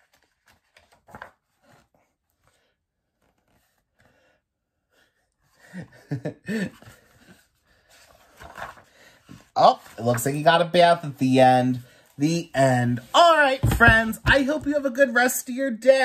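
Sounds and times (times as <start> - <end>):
man chuckling: 5.6 - 7.0.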